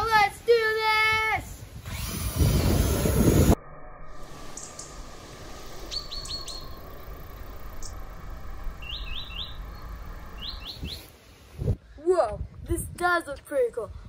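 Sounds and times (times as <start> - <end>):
small bird chirping: 4.4 - 5.1, 5.7 - 11.7.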